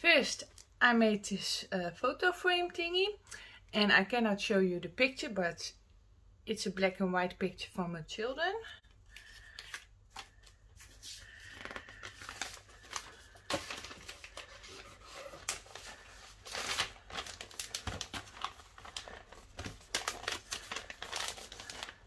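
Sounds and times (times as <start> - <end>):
paper crinkling and rustling: 9.1 - 22.0.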